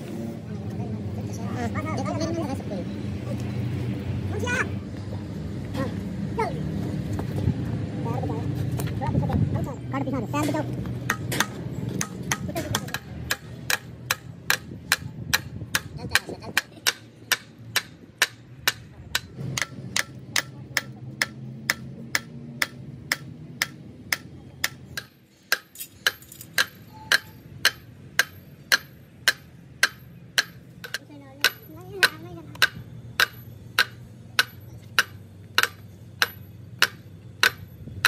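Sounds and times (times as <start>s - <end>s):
hammer striking metal: 11.1s - 37.7s.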